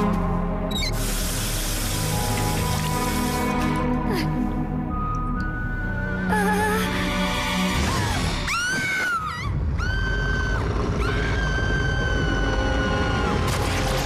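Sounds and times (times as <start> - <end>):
dramatic cartoon music: 0.0 - 14.0.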